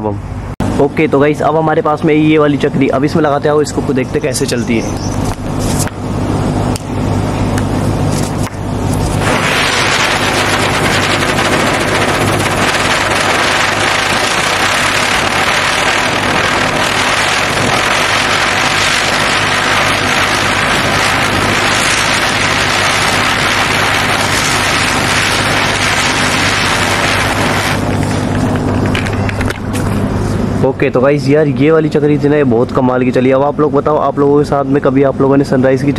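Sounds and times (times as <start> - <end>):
firework fizzing hiss: 8.9 - 28.5.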